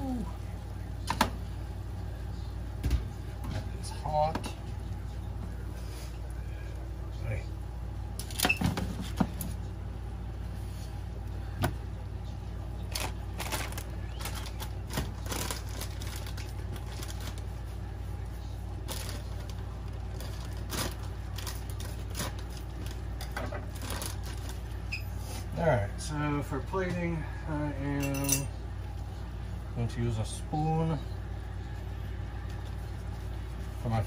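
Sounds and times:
hot foil pan crackling: 12.8 - 24.9.

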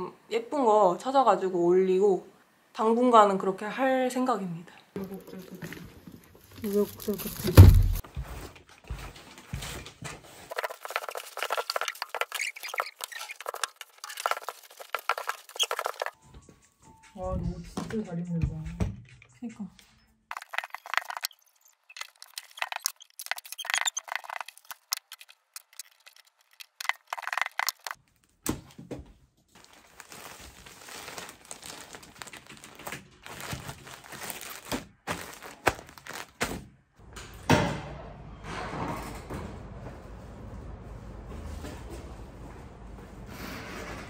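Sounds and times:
plastic bag crinkling: 5.0 - 8.0, 10.4 - 16.2, 20.3 - 28.0, 29.6 - 36.4
sudden thump: 7.4 - 8.0.

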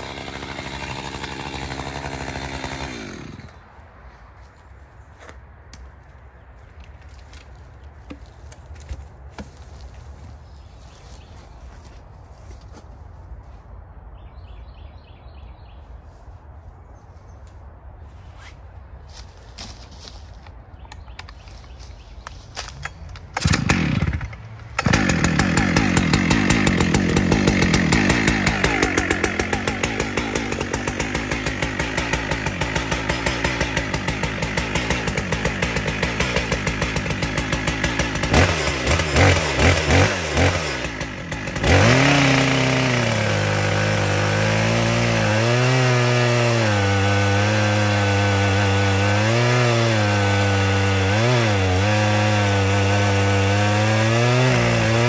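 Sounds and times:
chainsaw cutting through log: 0.0 - 3.6, 23.4 - 55.0
chainsaw engine running: 0.0 - 3.6, 23.4 - 55.0.

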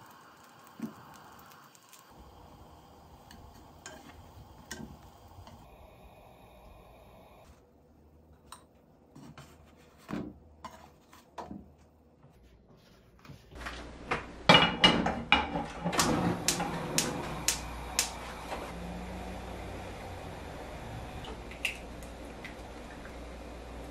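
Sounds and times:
steady low hum: 2.2 - 8.4
pans and utensils clinking: 14.5 - 16.7.

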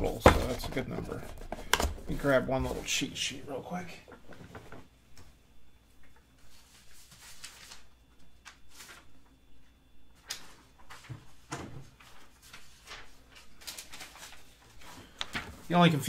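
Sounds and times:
soft handling rustles and scrapes: 0.4 - 4.9, 6.1 - 7.9.

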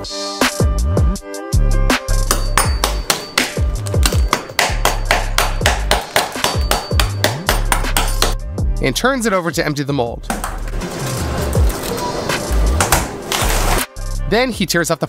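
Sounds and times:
music with deep bass: 0.0 - 2.5, 6.9 - 9.3, 10.3 - 14.7
rapid sharp knocks: 2.3 - 8.4.

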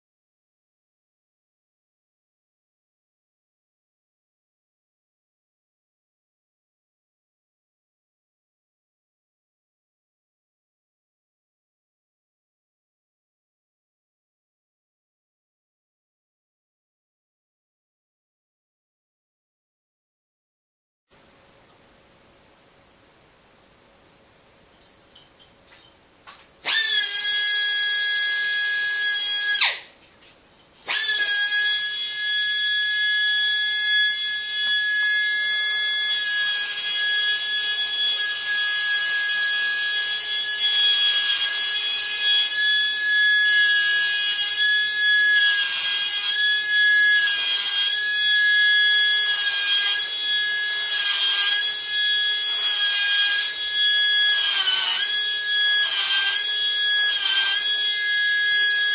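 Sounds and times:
die grinder whining: 26.6 - 29.9, 30.8 - 58.9.

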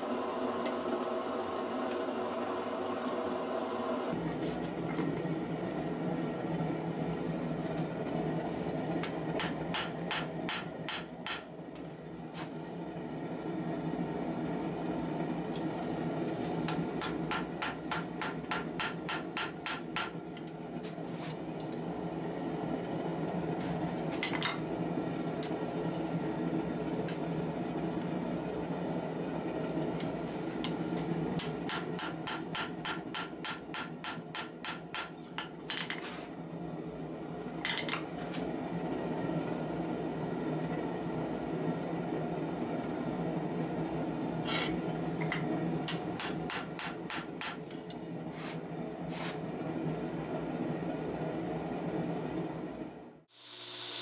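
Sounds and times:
hammer striking steel on anvil: 9.4 - 11.5, 16.7 - 20.2, 31.4 - 36.0, 45.2 - 48.1.

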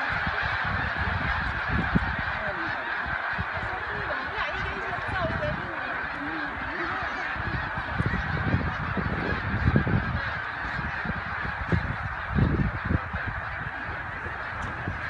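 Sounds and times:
flock of birds honking: 0.0 - 15.0.

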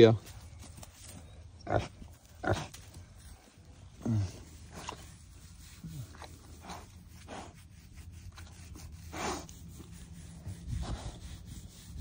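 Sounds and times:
pig snuffling: 0.2 - 12.0
hand rubbing bristly coat: 4.6 - 12.0.

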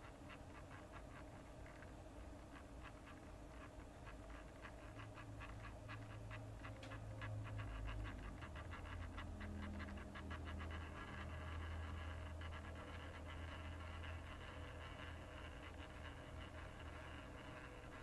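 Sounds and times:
low motor hum: 4.5 - 18.0.

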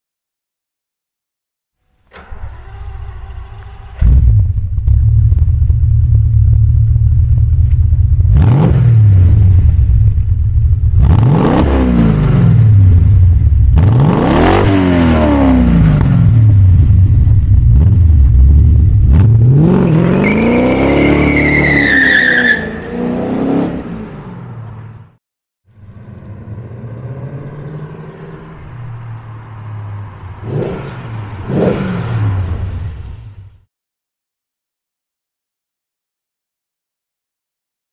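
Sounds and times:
engine starter cranking: 2.0 - 4.4
car pulling away: 2.1 - 14.2
car engine idling and revving: 2.1 - 33.6.

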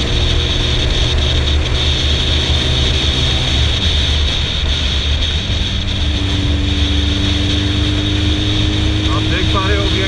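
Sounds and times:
motorcycle engine running: 0.0 - 10.0
wind rush: 0.0 - 10.0.

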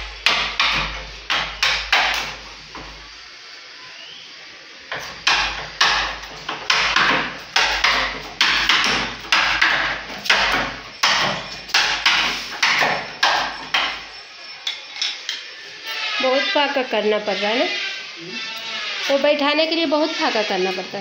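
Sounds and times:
hammer striking chisel into wood: 0.2 - 2.4, 4.9 - 14.0.

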